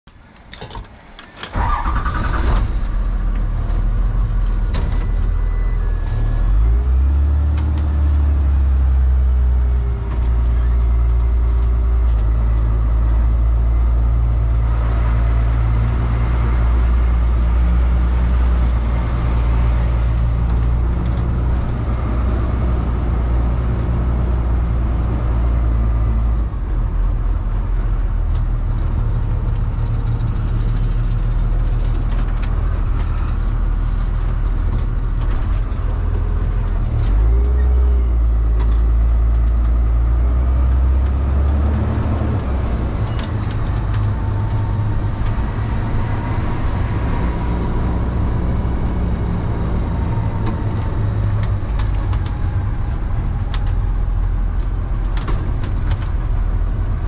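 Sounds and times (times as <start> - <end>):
truck engine running: 1.6 - 57.0.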